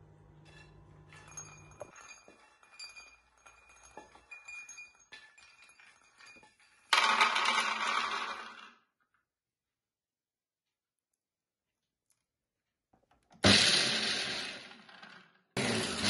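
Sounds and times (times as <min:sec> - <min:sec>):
dense rattle of nuts sliding: 0:01.2 - 0:08.8.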